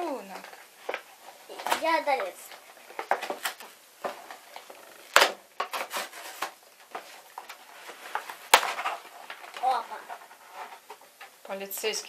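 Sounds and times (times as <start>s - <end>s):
paper and cardboard rustling: 0.0s - 12.0s
paper ripping: 4.3s - 10.8s.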